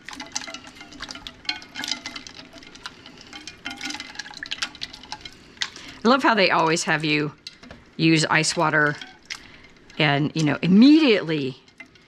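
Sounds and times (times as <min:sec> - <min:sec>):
ice cubes clinking: 0:00.0 - 0:06.8
water sloshing in a bowl: 0:00.0 - 0:12.0.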